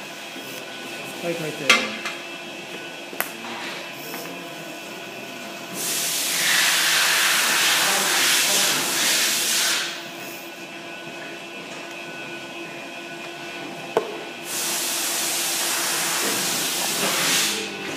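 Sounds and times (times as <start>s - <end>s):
welding arc hissing: 5.7s - 10.0s, 14.4s - 17.7s.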